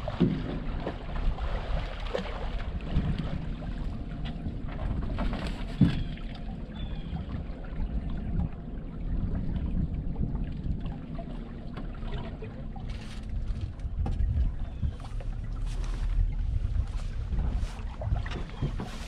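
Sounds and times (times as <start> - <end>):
wind rumbling on microphone: 0.0 - 19.0
gear knocking on boat: 13.3 - 15.8, 16.8 - 19.0.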